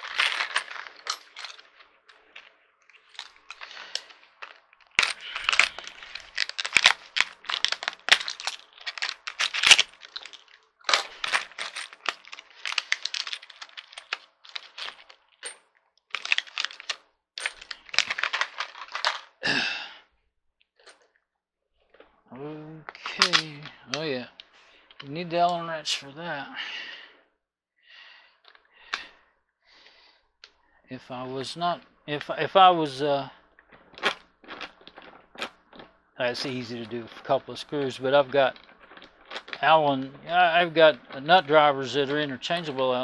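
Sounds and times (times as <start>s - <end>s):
plastic packet crinkling: 0.0s - 19.6s, 22.9s - 24.1s, 33.6s - 43.0s.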